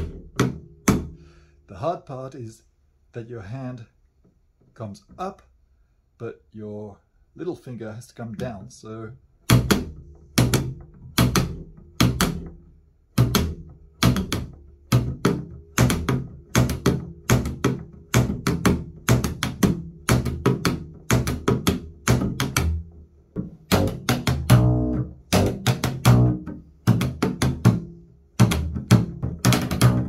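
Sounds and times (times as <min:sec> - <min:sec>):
slapped double bass: 0:00.0 - 0:01.4, 0:08.3 - 0:30.0.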